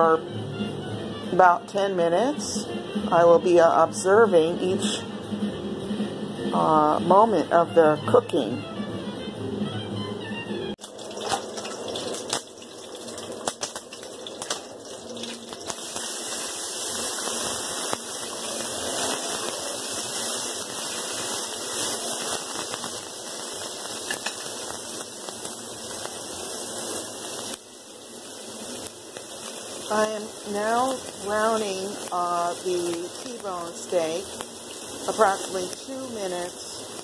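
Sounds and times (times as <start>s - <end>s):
steak sizzling in a frying pan: 10.8s - 37.0s.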